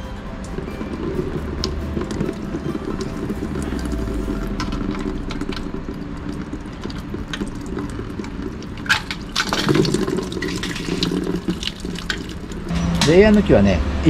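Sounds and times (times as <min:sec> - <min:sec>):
coolant pouring and dripping: 0:00.0 - 0:12.7.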